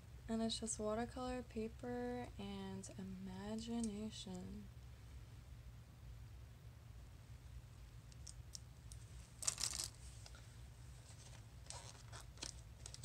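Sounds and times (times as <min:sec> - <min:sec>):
faint low hum: 0:00.0 - 0:13.0
cardboard rustling: 0:11.0 - 0:13.0.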